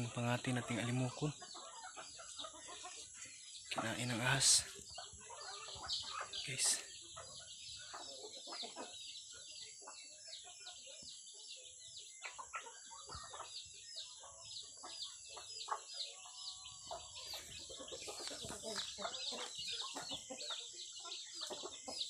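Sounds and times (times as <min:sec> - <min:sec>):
chickens clucking: 0:00.0 - 0:22.0.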